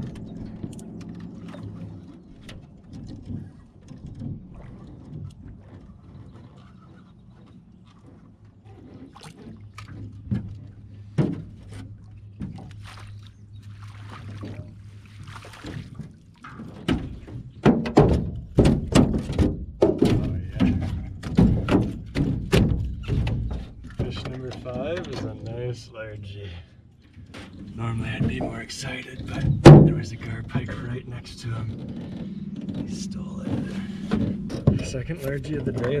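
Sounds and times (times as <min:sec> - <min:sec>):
loud thunks and knocks: 0:16.6 - 0:24.5, 0:29.2 - 0:30.6, 0:31.6 - 0:36.0.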